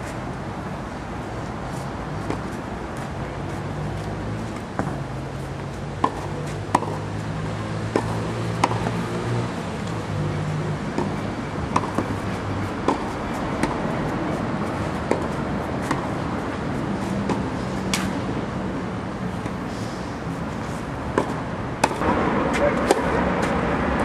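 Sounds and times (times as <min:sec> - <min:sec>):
tennis ball struck by racket: 0:04.5 - 0:05.0, 0:05.6 - 0:07.1, 0:07.9 - 0:09.2, 0:10.9 - 0:18.2, 0:21.1 - 0:23.6.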